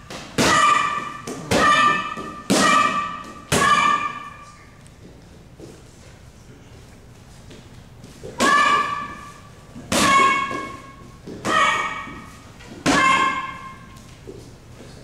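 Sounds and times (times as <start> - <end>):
boy shouting: 0.4 - 4.4, 8.4 - 9.3, 9.9 - 13.9.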